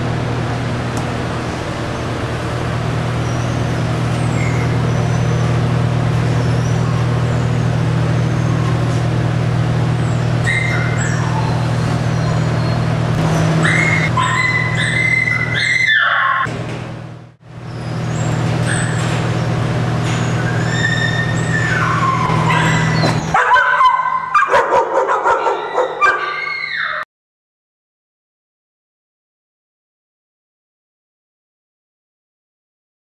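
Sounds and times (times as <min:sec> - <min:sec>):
low mechanical hum: 0:00.0 - 0:27.0
dogs whimpering and yipping: 0:10.4 - 0:16.5, 0:17.8 - 0:19.0, 0:20.1 - 0:27.0.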